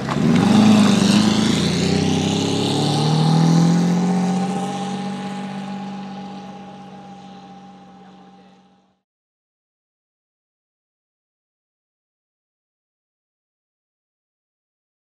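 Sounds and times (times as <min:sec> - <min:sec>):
car engine accelerating: 0:00.0 - 0:09.0.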